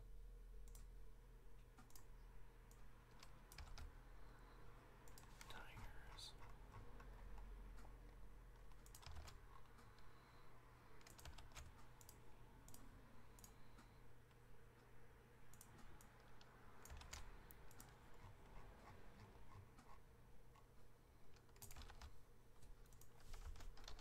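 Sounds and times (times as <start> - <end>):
computer keyboard clicking: 1.8 - 2.1, 2.7 - 3.9, 5.0 - 7.9, 8.5 - 14.0, 15.5 - 18.3, 21.3 - 24.0.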